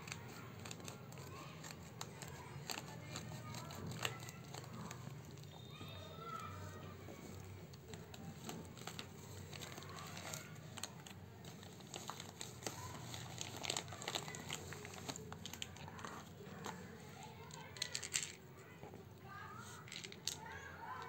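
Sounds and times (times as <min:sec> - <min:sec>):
plastic mailer bag crinkling: 0:07.9 - 0:18.4.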